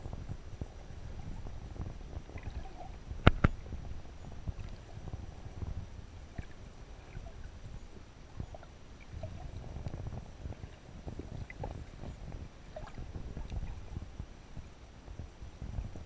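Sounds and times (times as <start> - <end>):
small clicks and bubbly blips: 2.2 - 7.5, 8.3 - 14.0.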